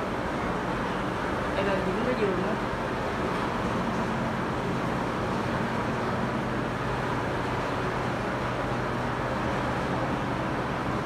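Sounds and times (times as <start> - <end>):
ventilation hum and air rush: 0.0 - 11.0.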